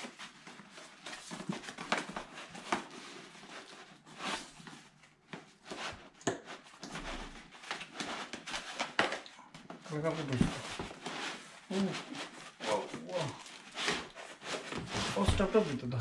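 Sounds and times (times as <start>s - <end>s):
cardboard box rustling and scraping: 10.0s - 15.8s.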